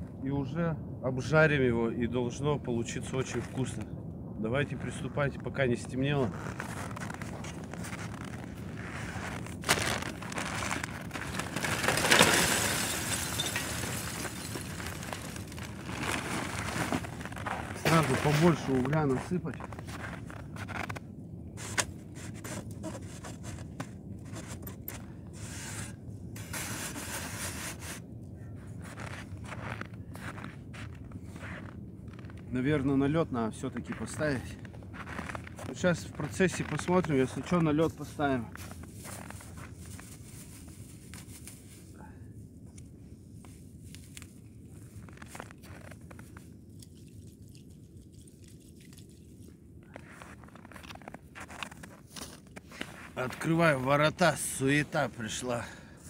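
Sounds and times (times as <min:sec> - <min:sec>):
wind rumble on microphone: 0:00.0 - 0:53.5
footsteps crunching snow: 0:06.2 - 0:21.0, 0:21.6 - 0:28.0, 0:28.6 - 0:32.5, 0:33.8 - 0:41.9, 0:43.9 - 0:46.4, 0:49.9 - 0:55.7.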